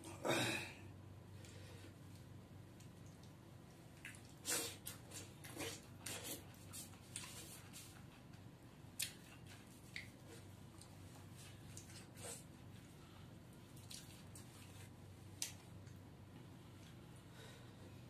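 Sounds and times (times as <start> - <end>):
wet chewing and slurping: 4.0 - 8.0, 13.7 - 15.0.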